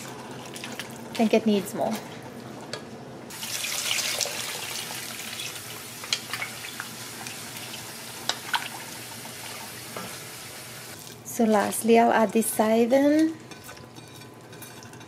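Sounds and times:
water pouring into a pot: 0:03.3 - 0:05.6.

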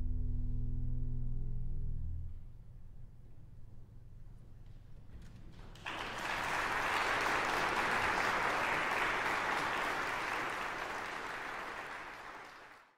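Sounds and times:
audience applauding: 0:05.4 - 0:12.9.

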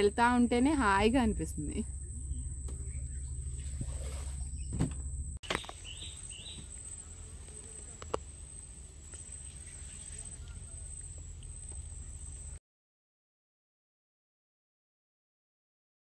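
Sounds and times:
low rumble: 0:00.0 - 0:05.4
rising bird chirps: 0:01.9 - 0:04.8, 0:05.4 - 0:07.8.

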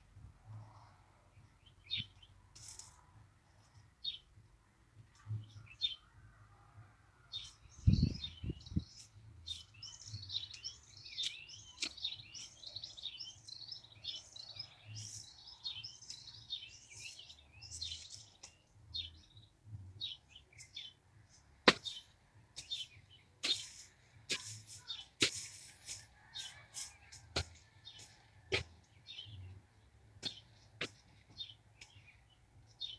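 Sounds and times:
small birds chirping: 0:00.5 - 0:04.4, 0:05.0 - 0:06.2, 0:07.3 - 0:32.9
hand hoe thudding in soil: 0:21.6 - 0:22.0, 0:23.4 - 0:27.6.

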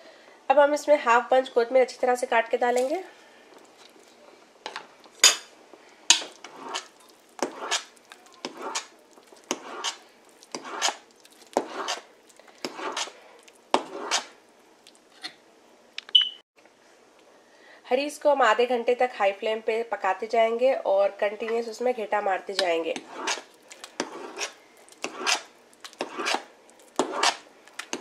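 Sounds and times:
metal spatula scraping metal pot: 0:06.1 - 0:14.4, 0:22.6 - 0:28.0.

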